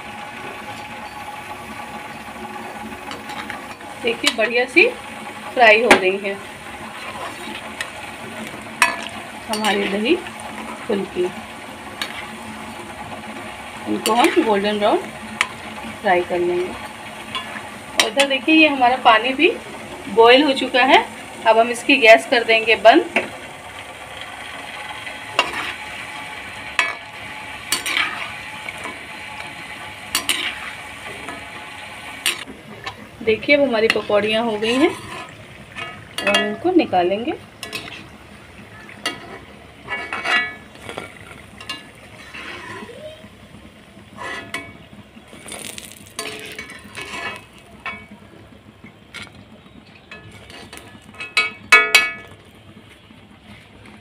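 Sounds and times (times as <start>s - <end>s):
food sizzling in hot oil: 0.0s - 48.3s
metal skimmer clinking on wok: 33.8s - 36.7s, 50.0s - 52.4s
metal spoon clinking on pan: 51.2s - 52.3s.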